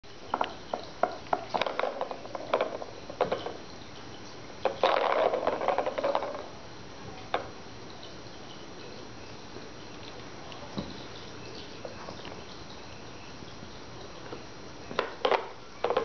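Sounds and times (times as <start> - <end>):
ball rattling round plastic track: 0.3 - 3.6, 4.6 - 6.5, 15.0 - 16.0.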